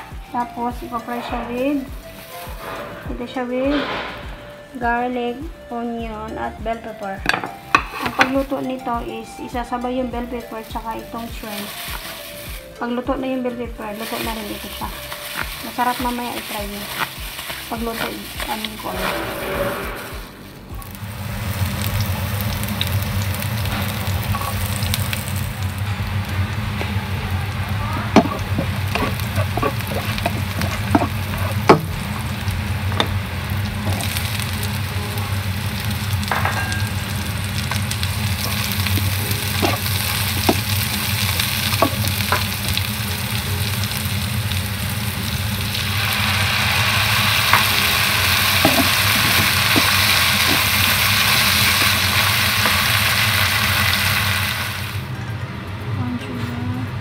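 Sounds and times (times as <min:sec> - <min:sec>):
vegetables sizzling in oil: 0:00.0 - 0:55.2
spatula tapping and scraping pan: 0:07.2 - 0:08.5
steady low hum: 0:12.5 - 0:57.0
sauce bubbling: 0:13.9 - 0:19.7, 0:20.3 - 0:55.2.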